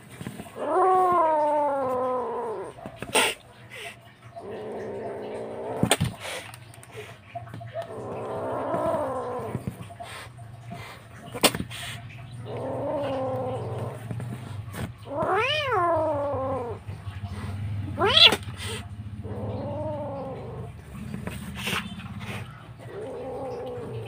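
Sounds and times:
kitten meowing: 0:15.0 - 0:16.8, 0:17.9 - 0:20.6.

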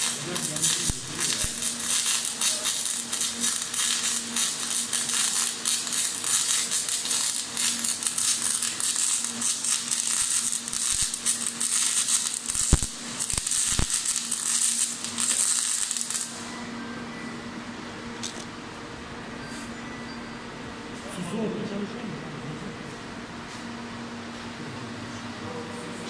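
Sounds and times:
welding arc crackling: 0:00.0 - 0:16.5
steady low hum: 0:00.0 - 0:26.0.

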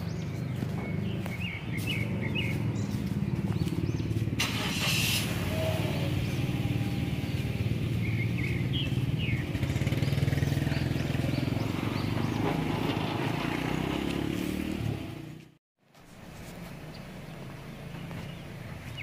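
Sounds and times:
car engine running: 0:00.0 - 0:12.8
small birds chirping: 0:00.0 - 0:14.0, 0:16.4 - 0:19.0.

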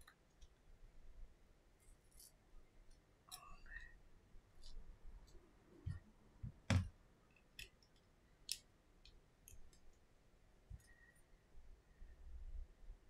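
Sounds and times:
small clicks and taps of parts: 0:06.7 - 0:10.0.

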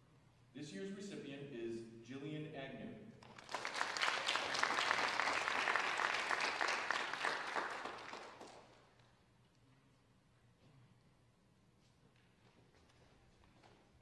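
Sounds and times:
crowd applauding: 0:03.2 - 0:09.0.

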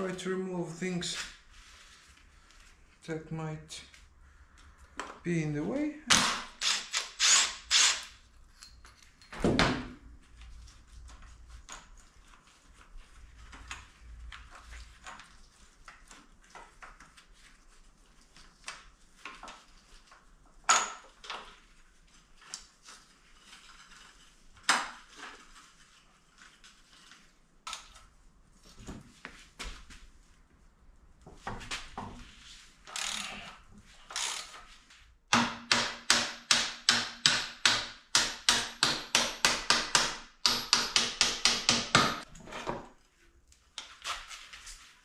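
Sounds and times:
tools clicking and clacking: 0:06.1 - 0:09.4.

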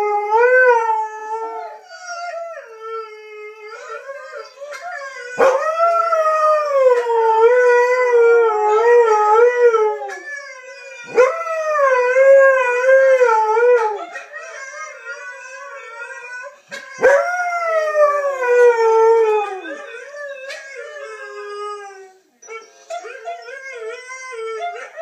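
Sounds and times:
faint howling from television: 0:00.0 - 0:25.0
husky howling: 0:00.0 - 0:25.0.

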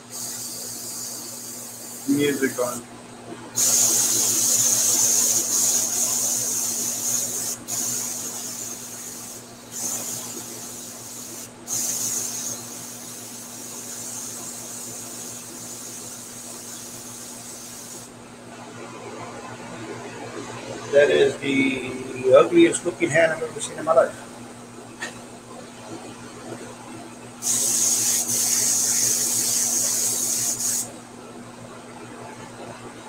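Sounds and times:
airbrush hissing: 0:00.0 - 0:02.8, 0:03.6 - 0:18.1, 0:27.4 - 0:30.9.

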